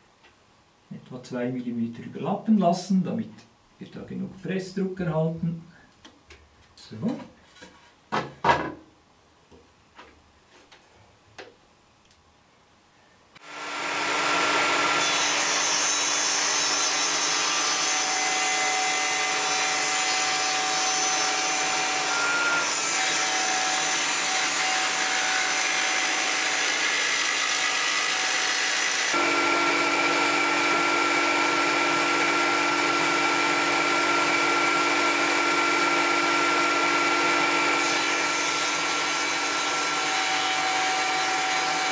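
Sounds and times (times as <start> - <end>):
table saw whining: 13.4 - 41.9.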